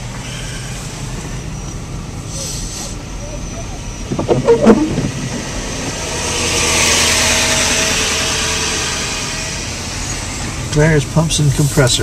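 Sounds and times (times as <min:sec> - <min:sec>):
heavy truck passing: 0:00.0 - 0:12.0
short pitched sounds: 0:03.3 - 0:07.8.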